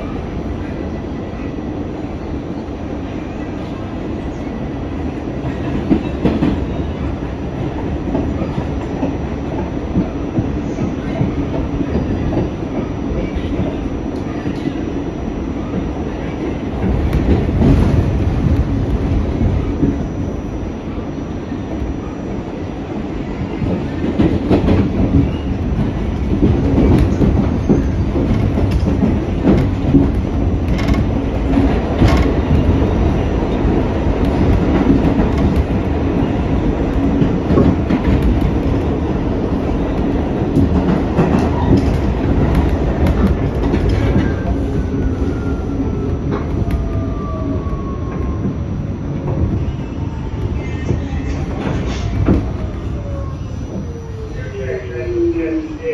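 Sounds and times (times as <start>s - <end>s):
train wheels rumbling on rail: 0.0s - 55.9s.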